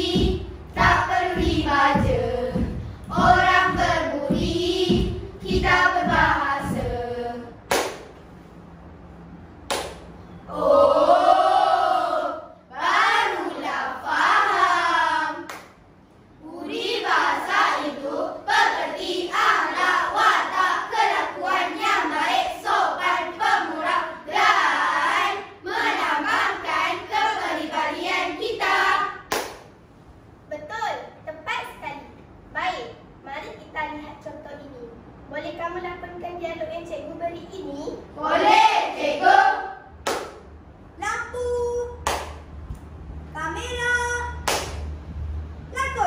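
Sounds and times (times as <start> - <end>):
children's choir singing: 0.0 - 7.9, 10.5 - 15.6, 16.4 - 29.5, 38.2 - 40.2
sharp hand clap: 7.7 - 8.2, 9.6 - 10.1, 15.5 - 15.8, 29.3 - 29.7, 40.0 - 40.5, 42.0 - 42.9, 44.4 - 45.0.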